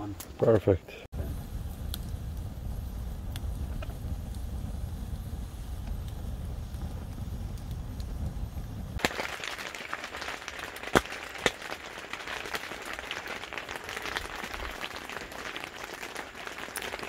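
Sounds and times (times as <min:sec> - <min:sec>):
rain on fabric roof: 0:09.0 - 0:17.0.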